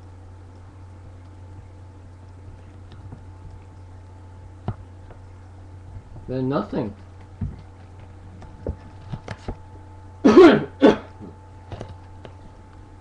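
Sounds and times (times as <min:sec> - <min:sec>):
steady low hum: 0:00.0 - 0:13.0
faint clicks and knocks: 0:00.5 - 0:03.9
person coughing: 0:10.2 - 0:11.4.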